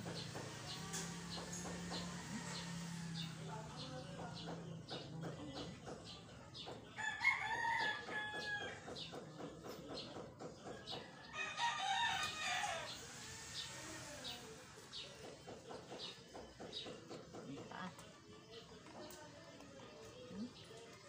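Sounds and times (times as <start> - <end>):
rooster crowing: 7.0 - 8.8, 11.3 - 13.1.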